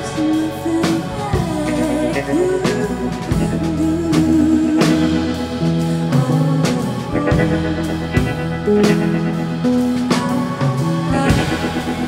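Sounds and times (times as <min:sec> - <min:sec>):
rock band playing: 0:00.0 - 0:12.0
woman singing: 0:00.0 - 0:12.0.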